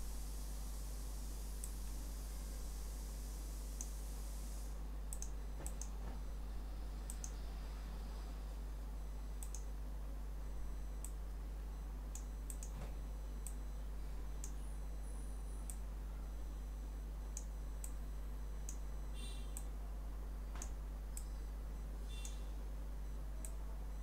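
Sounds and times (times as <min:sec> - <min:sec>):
low electrical hum: 0:00.0 - 0:24.0
computer mouse clicking: 0:05.1 - 0:05.9, 0:07.1 - 0:07.4, 0:09.4 - 0:09.7, 0:12.2 - 0:12.8.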